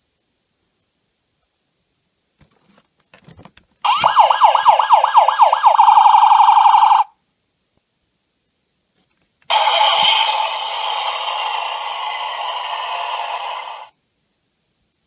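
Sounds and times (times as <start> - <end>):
toy electronic siren warbling: 3.9 - 7.1, 9.5 - 13.9
electronic toy sound effect: 9.5 - 13.9.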